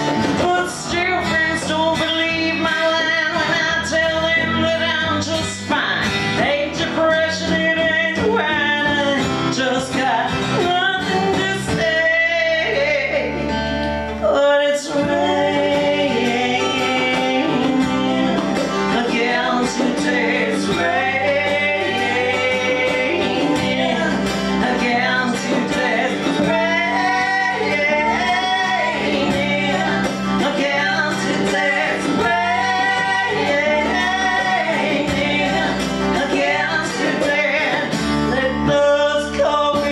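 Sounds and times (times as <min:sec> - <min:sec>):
strummed acoustic guitars: 0:00.0 - 0:39.9
women singing in harmony: 0:14.2 - 0:39.9.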